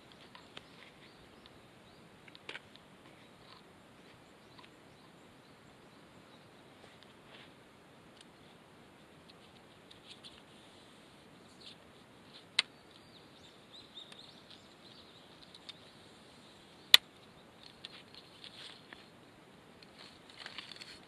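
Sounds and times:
faint bird chirps: 0.0s - 2.2s, 3.0s - 7.0s, 9.2s - 19.4s.

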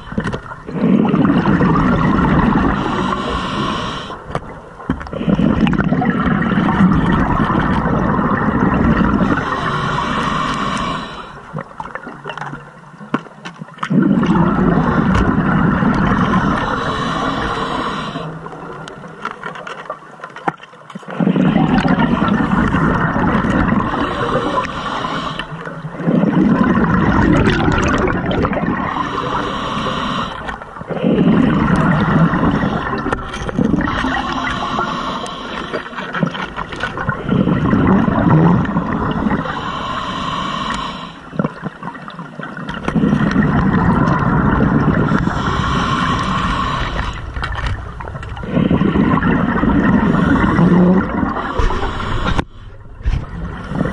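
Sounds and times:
exhaled bubbles underwater: 0.0s - 53.9s
regulator hissing inhale: 2.6s - 4.3s, 9.2s - 11.5s, 16.2s - 18.5s, 23.9s - 25.8s, 28.9s - 33.2s, 34.0s - 36.2s, 39.4s - 41.3s, 45.1s - 47.6s, 50.0s - 52.9s.

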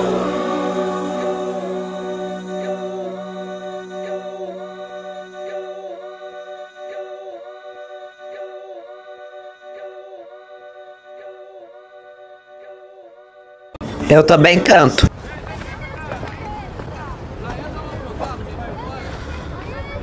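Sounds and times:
a cappella vocal chord: 0.0s - 13.9s.

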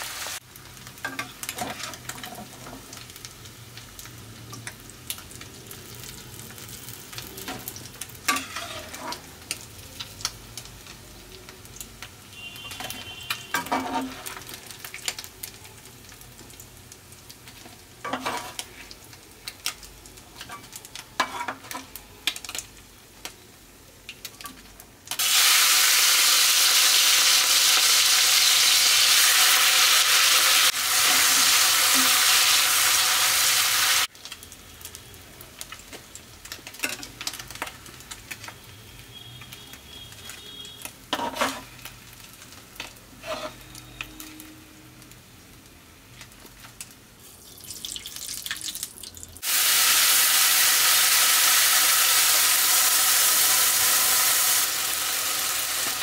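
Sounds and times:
paste sizzling in hot oil: 0.0s - 20.6s, 25.1s - 44.0s, 46.4s - 56.0s
prawns sizzling in hot oil: 0.0s - 56.0s
metal spatula scraping a pan: 1.1s - 2.8s, 8.3s - 9.3s, 12.6s - 14.5s, 18.0s - 18.8s, 20.4s - 21.9s, 41.1s - 41.8s, 43.2s - 43.8s.

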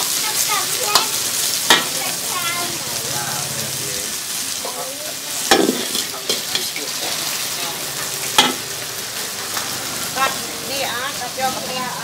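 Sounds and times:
vegetables sizzling in wok: 0.0s - 12.0s
metal ladle scraping wok: 0.9s - 4.4s, 5.4s - 10.5s.

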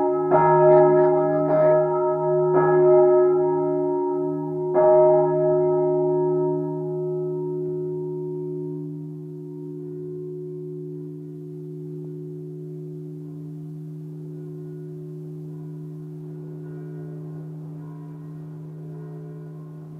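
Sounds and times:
large church bell humming: 0.0s - 19.9s.

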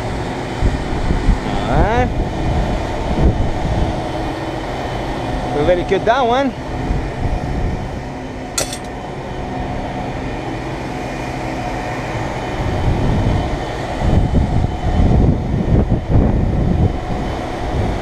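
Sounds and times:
sharp click: 8.6s - 8.9s.

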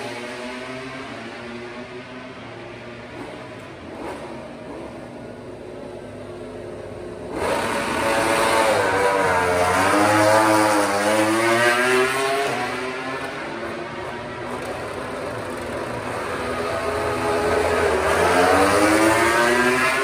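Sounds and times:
racing motorcycle passing at speed: 7.3s - 20.0s.

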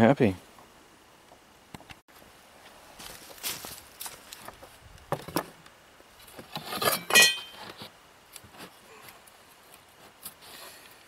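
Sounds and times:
metal tool clinking: 7.0s - 7.6s.

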